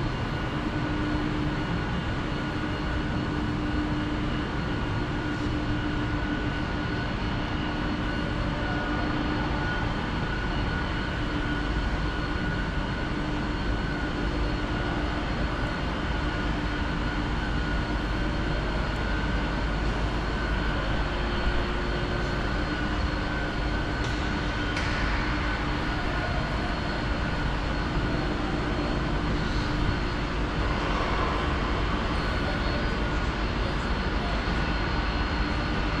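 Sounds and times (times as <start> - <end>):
machinery drone: 0.0 - 36.0.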